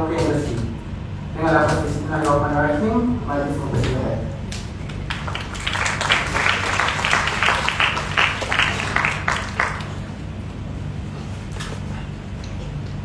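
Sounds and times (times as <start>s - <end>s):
audience applauding: 4.8s - 10.2s.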